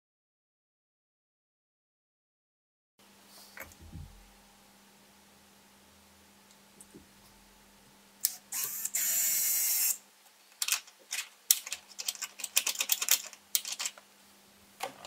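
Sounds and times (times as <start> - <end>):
cordless drill driving screw: 8.5 - 10.0
clicks and rattles of gear: 10.6 - 14.0.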